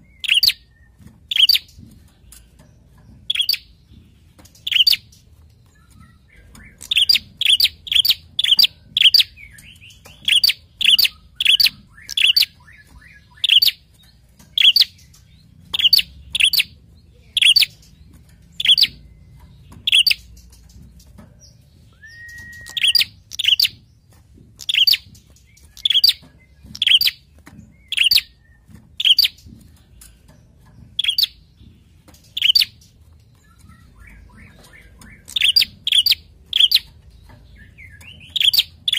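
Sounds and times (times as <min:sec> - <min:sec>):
bird chirping: 0:00.0 - 0:38.9
bird whistle: 0:21.9 - 0:23.7.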